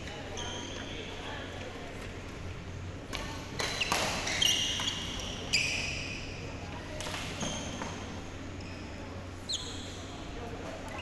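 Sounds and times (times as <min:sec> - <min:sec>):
sneakers squeaking on floor: 0:00.0 - 0:01.3, 0:03.6 - 0:06.4, 0:07.2 - 0:11.0.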